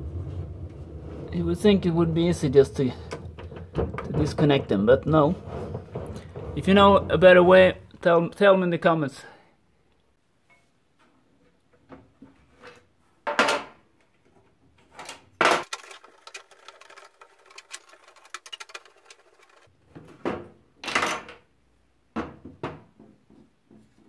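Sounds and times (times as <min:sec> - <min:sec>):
plastic clips clacking and scraping: 0:15.0 - 0:19.7.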